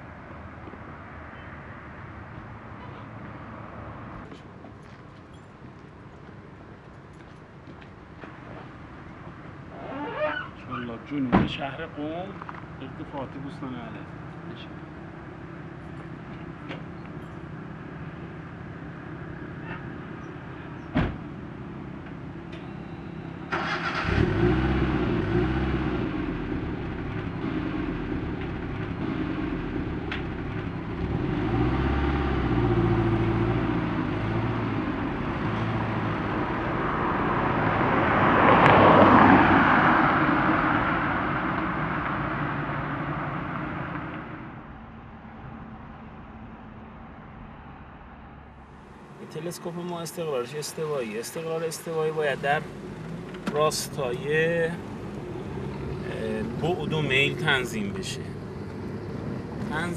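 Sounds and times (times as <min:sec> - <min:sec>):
car engine hum: 0:12.0 - 0:59.9.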